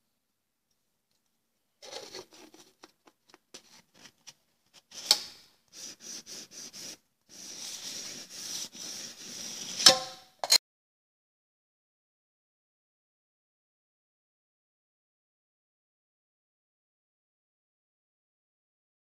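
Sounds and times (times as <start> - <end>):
aluminium cans scraping: 1.8 - 5.2.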